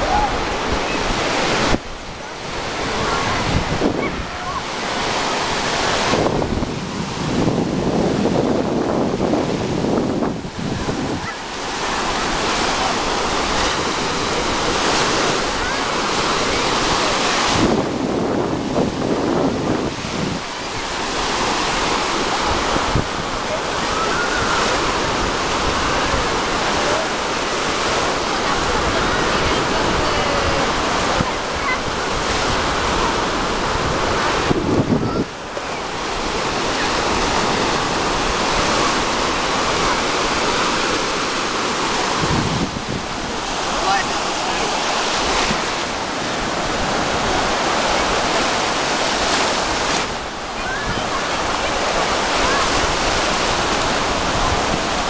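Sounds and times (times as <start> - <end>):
small waves breaking on shore: 0.0 - 55.0
wind buffeting microphone: 0.0 - 55.0.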